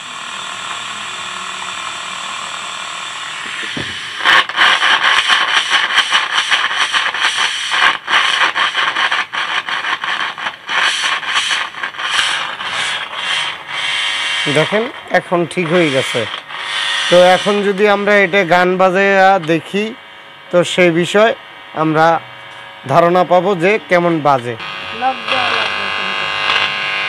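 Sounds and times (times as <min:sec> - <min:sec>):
amplifier hiss through speaker: 0:00.0 - 0:27.0
scratchy crackling of volume knob: 0:03.4 - 0:19.8, 0:24.6 - 0:27.0.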